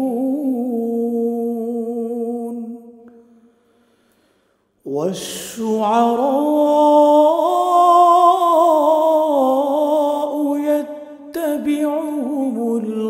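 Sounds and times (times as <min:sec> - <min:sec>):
man reciting melodically: 0:04.8 - 0:13.0.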